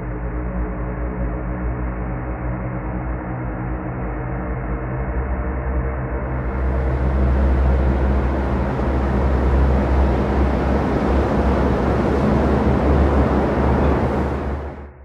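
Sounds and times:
sea roaring: 6.3s - 15.0s.

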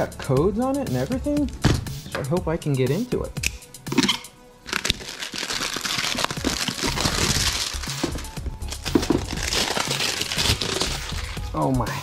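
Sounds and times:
background music: 0.0s - 12.0s
plastic shrink-wrap crinkling and tearing: 4.6s - 11.4s.

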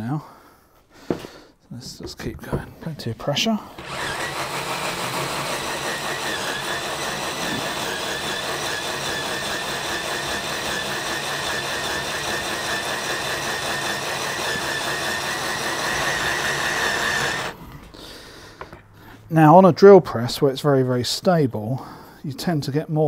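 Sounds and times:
drill bit grinding into steel: 3.8s - 17.6s
drill motor whine: 3.8s - 17.6s.

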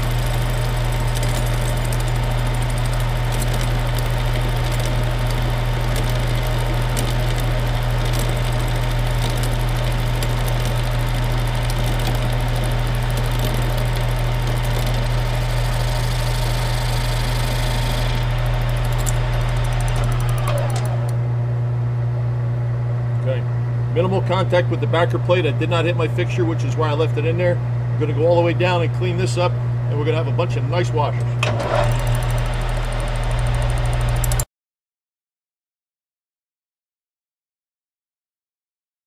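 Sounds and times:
metal lathe running: 0.0s - 21.2s, 31.4s - 34.4s.

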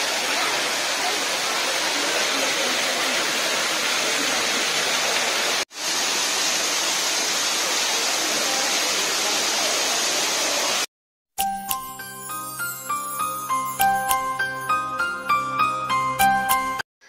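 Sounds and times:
falling water rushing: 0.0s - 10.9s.

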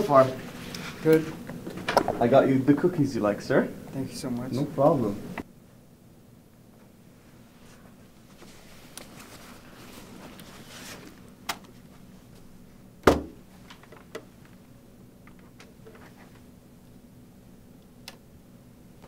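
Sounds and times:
soft rustle: 7.4s - 11.2s
heavy thump on wooden desk: 13.0s - 13.4s.

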